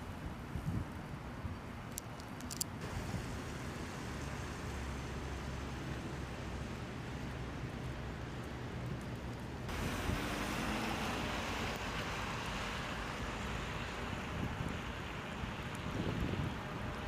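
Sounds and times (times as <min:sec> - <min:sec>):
wind buffeting microphone: 0:00.1 - 0:01.6, 0:14.2 - 0:15.0, 0:15.8 - 0:17.0
traffic hiss: 0:02.0 - 0:17.0.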